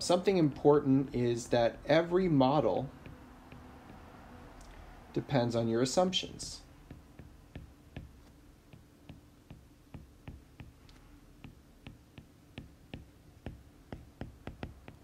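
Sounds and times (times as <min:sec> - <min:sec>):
low steady hum: 0:00.0 - 0:15.0
stylus tapping on tablet screen: 0:02.3 - 0:04.8, 0:06.7 - 0:15.0.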